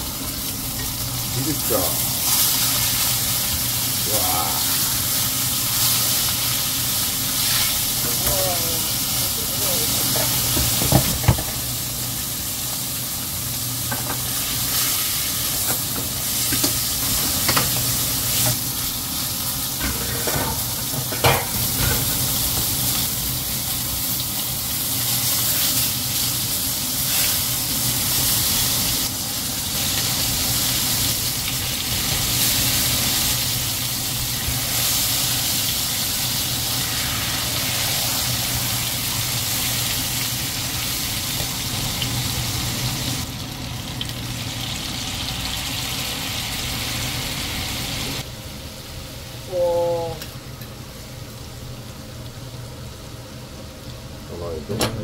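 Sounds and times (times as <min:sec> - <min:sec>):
steak sizzling in a frying pan: 0:00.0 - 0:48.3.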